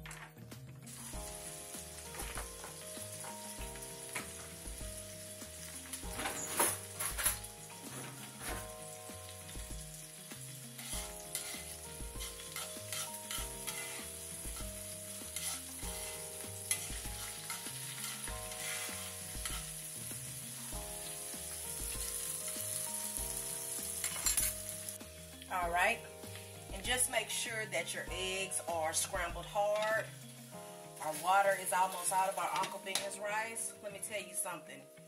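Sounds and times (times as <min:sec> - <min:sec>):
eggs sizzling in a pan: 0:00.8 - 0:35.0
utensil scraping a pan: 0:10.7 - 0:19.7.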